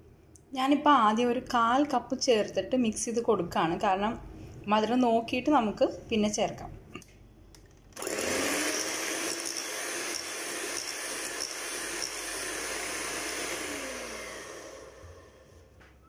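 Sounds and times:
electric hand mixer running: 8.0s - 15.7s.

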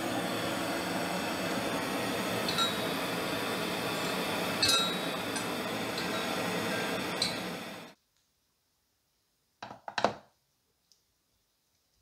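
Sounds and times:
steady hiss: 0.0s - 9.4s
steel rod clinking inside pipe: 4.6s - 6.3s.

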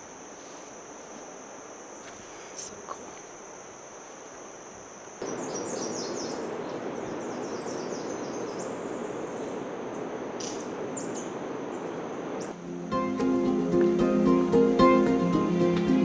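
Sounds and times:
high insect trill: 0.0s - 16.0s
bird chirps: 5.2s - 9.6s.

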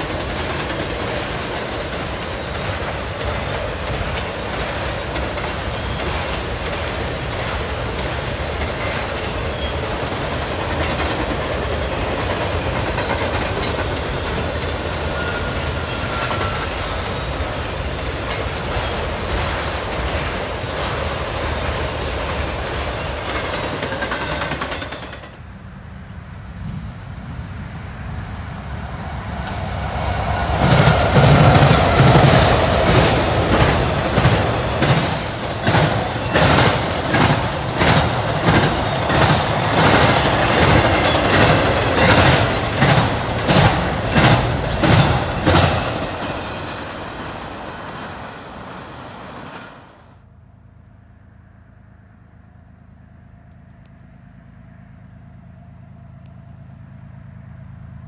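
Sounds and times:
wheels clacking over rail joints: 0.0s - 25.4s, 30.3s - 48.2s
distant train rumble: 0.0s - 58.0s
freight train passing: 0.0s - 58.0s.

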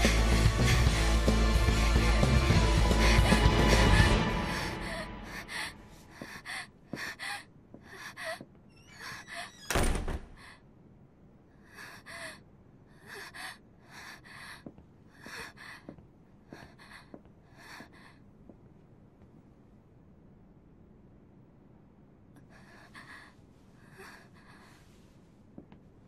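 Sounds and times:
woman panting: 0.0s - 9.5s, 11.6s - 18.3s, 22.4s - 25.0s.

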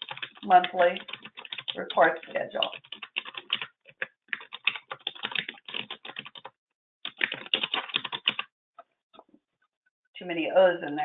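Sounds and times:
typing on keyboard: 0.0s - 8.5s.

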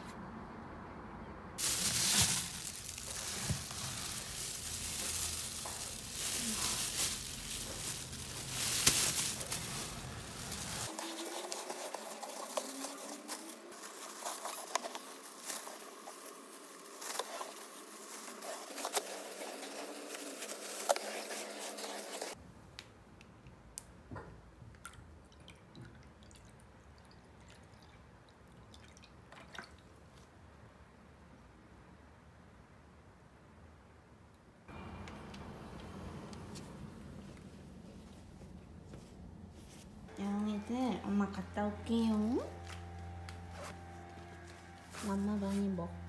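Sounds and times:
cat litter rustling: 1.6s - 22.4s.

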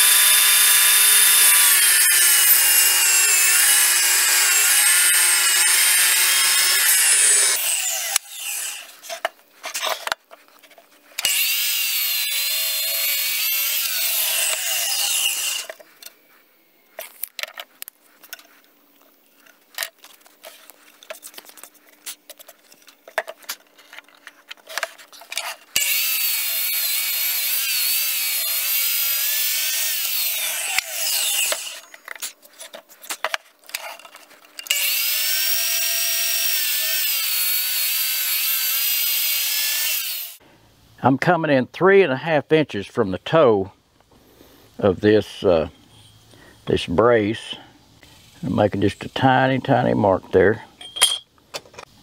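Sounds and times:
miter saw cutting wood: 0.0s - 10.0s, 11.2s - 15.8s, 25.5s - 31.9s, 34.6s - 40.4s.

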